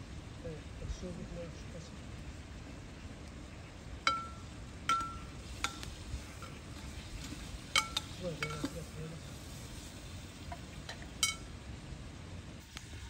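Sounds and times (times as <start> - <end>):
metal utensil clinking on pot: 4.1 - 6.6, 7.7 - 8.9, 10.8 - 11.5.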